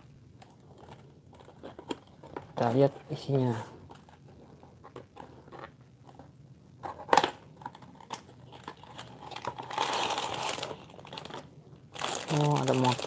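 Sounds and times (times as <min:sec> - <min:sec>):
plastic bag crinkling: 0:08.0 - 0:13.0.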